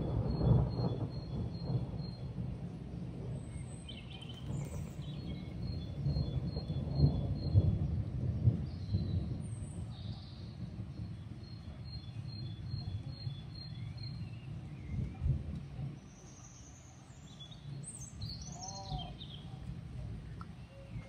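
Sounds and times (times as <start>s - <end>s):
thunder rumbling: 0.0s - 16.3s.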